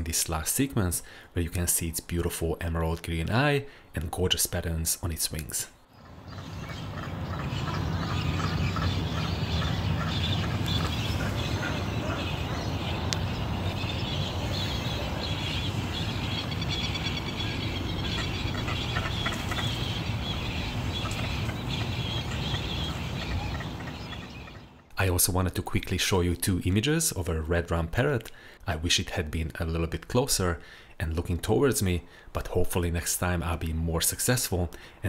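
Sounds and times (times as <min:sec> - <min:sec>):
many birds calling and chattering: 0:05.8 - 0:24.9
steady background noise: 0:05.9 - 0:24.8.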